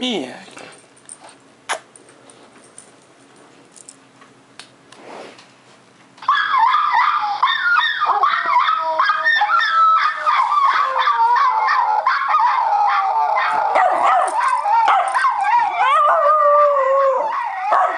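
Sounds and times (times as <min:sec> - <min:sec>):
dog howling: 0:06.2 - 0:17.9.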